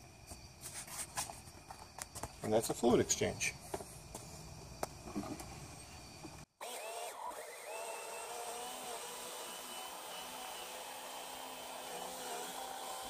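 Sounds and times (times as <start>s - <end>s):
electric pump motor whine: 6.6s - 13.0s.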